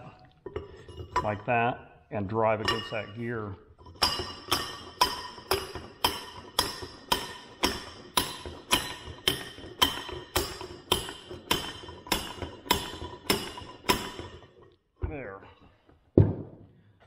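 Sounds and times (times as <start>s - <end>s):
hammer striking metal: 4.0s - 14.5s.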